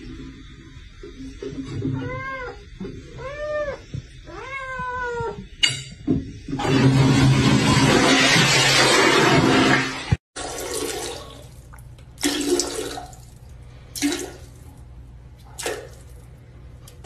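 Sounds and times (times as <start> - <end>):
cat meowing: 1.8 - 5.5
toilet flushing: 6.5 - 14.9.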